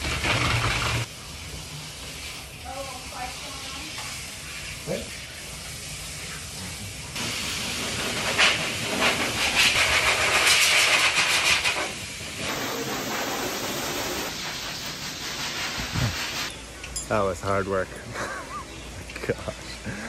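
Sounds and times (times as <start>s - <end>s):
blow dryer blowing air: 7.2s - 16.5s.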